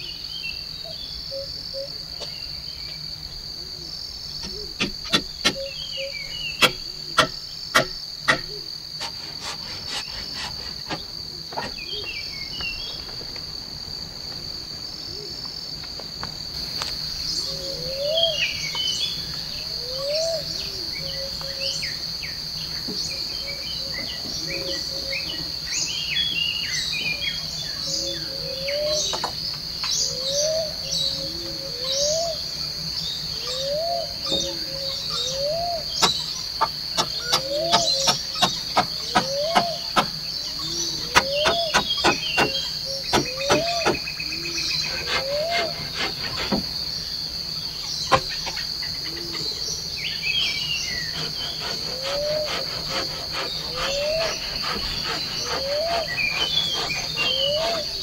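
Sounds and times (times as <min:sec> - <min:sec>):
insects droning: 0:00.0 - 0:58.0
birds chirping and calling: 0:00.6 - 0:13.0, 0:17.2 - 0:58.0
sharp knocks: 0:04.4 - 0:05.6, 0:06.6 - 0:08.6, 0:41.2 - 0:44.0.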